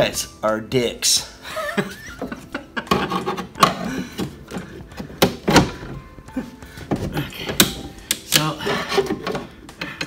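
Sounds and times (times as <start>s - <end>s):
metal linkage knocking and clunking: 2.2s - 6.2s, 6.8s - 10.0s.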